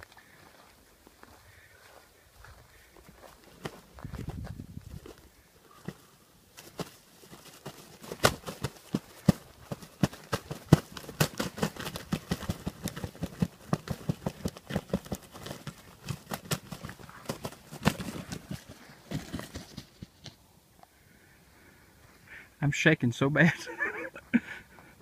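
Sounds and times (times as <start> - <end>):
wings beating against ground: 2.8 - 20.4.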